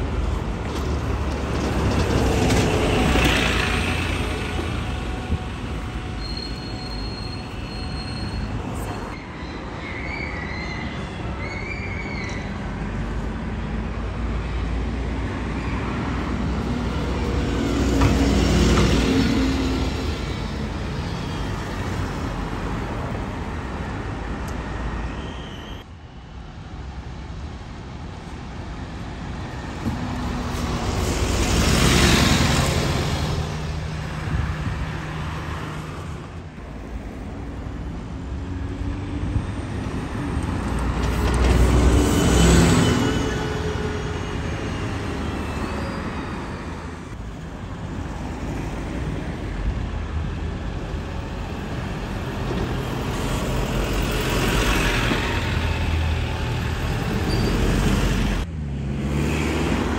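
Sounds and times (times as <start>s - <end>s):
buses passing: 0.0s - 59.9s.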